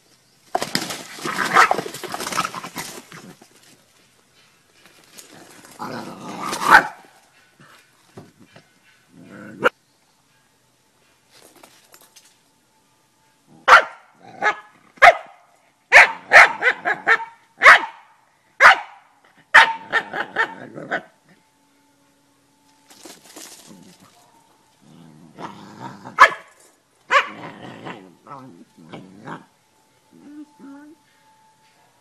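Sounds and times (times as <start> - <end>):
dog barking: 1.5 - 1.8, 6.7 - 7.1, 13.7 - 21.0, 26.2 - 26.5, 27.1 - 27.5.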